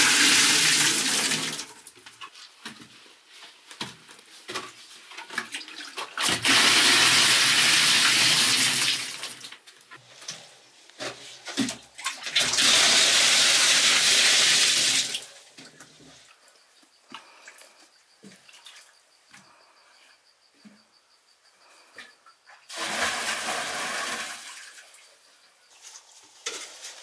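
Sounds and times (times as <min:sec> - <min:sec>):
water pouring and splashing: 0:04.5 - 0:09.6, 0:11.0 - 0:15.7, 0:22.7 - 0:25.0.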